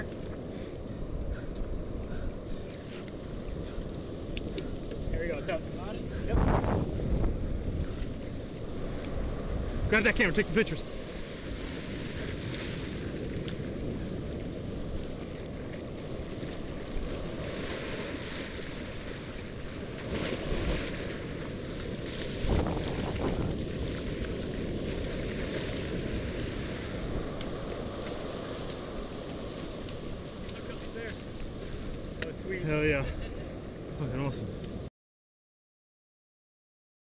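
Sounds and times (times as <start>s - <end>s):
ocean surf on beach: 0.0s - 34.9s
wind buffeting microphone: 0.0s - 34.9s.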